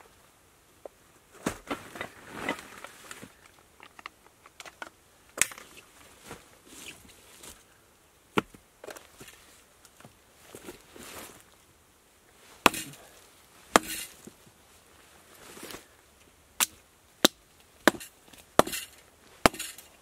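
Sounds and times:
sharp knocks: 12.7 - 13.0, 13.8 - 14.1.

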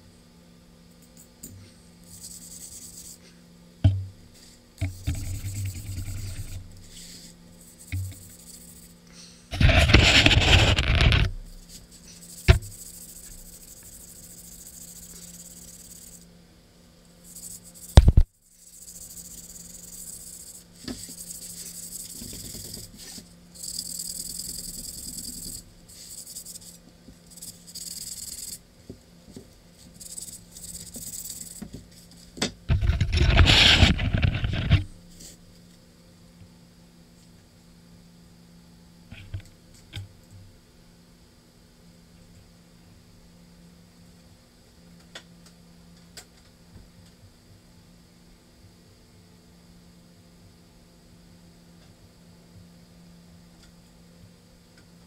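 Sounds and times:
sharp knock: 3.8 - 4.1, 18.0 - 18.3
faint rubbing: 4.4 - 16.2.

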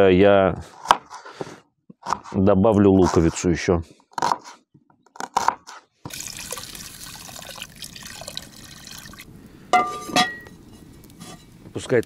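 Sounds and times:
water pouring into a pot: 6.1 - 9.4.

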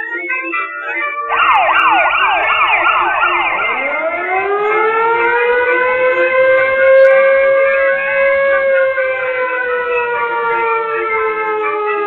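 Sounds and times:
siren wail: 0.2 - 12.0.

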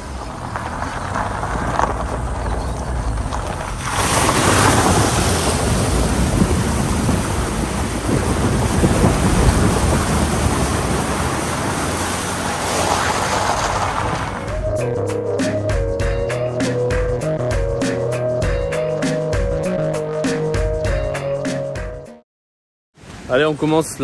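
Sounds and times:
car engine running: 0.0 - 6.6
tyres rolling on gravel: 0.0 - 14.6
water splashing against car: 3.2 - 14.5.

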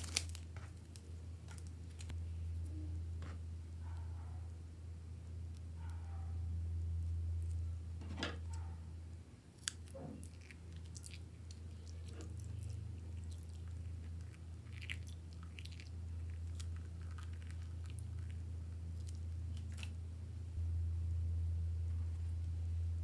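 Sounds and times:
piping bag crinkling and squelching: 0.0 - 2.2, 9.6 - 20.0
steady low hum: 0.0 - 23.0.

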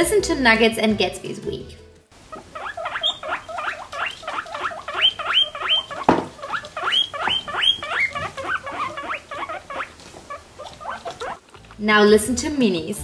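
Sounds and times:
guinea pigs wheeking: 2.2 - 11.9
single knock: 6.1 - 6.4.

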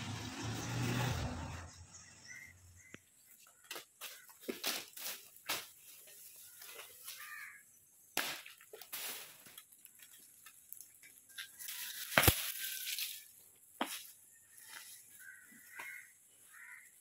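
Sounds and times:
sharp knocks and cracks: 8.2 - 10.6, 12.0 - 12.6.

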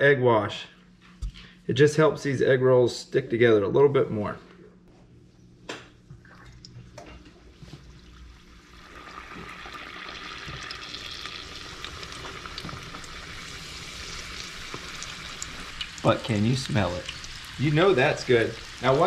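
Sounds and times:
food sizzling in hot oil: 8.6 - 19.0.

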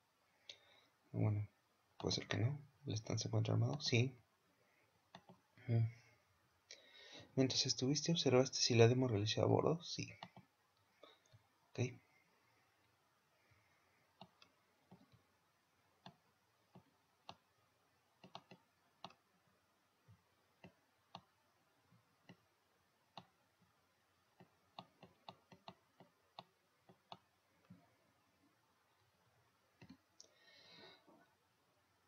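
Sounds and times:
faint computer mouse clicks: 18.2 - 19.2.

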